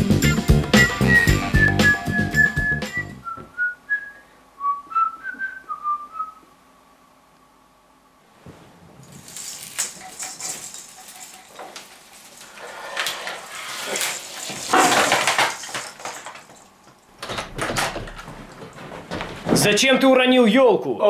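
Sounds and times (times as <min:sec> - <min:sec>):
tree branches rustling: 0:09.1 - 0:16.9
tree crashing onto floor: 0:09.1 - 0:17.0
baubles clinking: 0:13.2 - 0:16.9.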